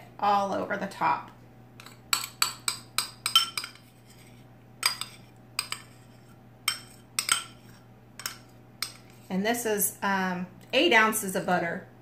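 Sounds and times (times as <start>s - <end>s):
metal utensil scraping a bowl: 1.8s - 9.3s.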